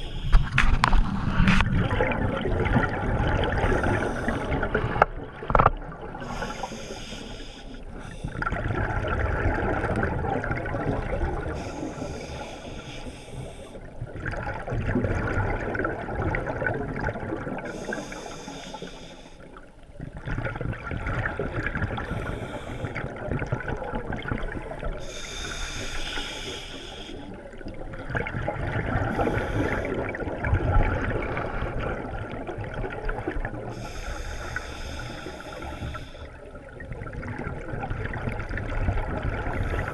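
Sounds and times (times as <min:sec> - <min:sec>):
diver exhaling bubbles underwater: 0:00.0 - 0:06.2.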